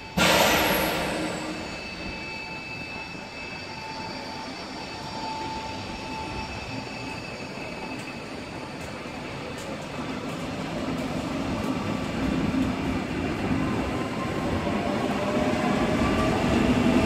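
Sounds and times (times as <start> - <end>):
high whining and squealing tones: 0.0 - 9.5
electric train rolling past: 0.0 - 17.0.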